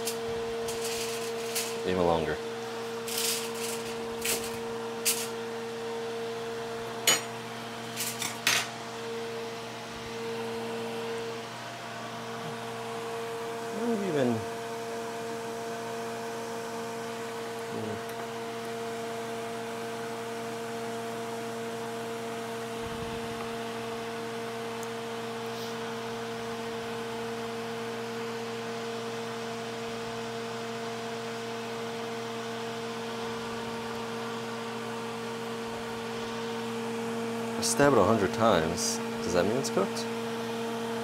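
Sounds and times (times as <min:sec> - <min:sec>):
appliance motor humming: 0:00.0 - 0:41.0.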